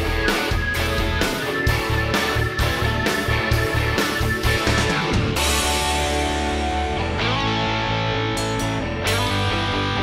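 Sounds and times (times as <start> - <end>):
rock music with guitar: 0.0 - 10.0.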